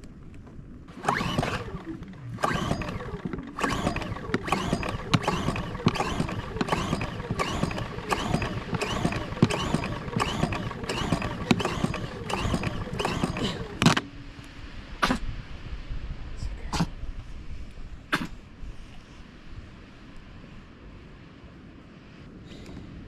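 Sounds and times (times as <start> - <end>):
generator pull-starter whirring: 0.9 - 14.4.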